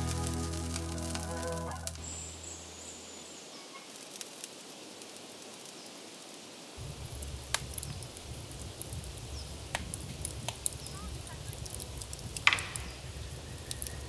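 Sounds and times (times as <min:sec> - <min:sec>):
background music: 0:00.0 - 0:02.6
campfire rumble: 0:00.0 - 0:05.7, 0:06.7 - 0:14.0
burning wood popping: 0:00.0 - 0:05.8, 0:06.8 - 0:14.0
outdoor hiss: 0:00.0 - 0:14.0.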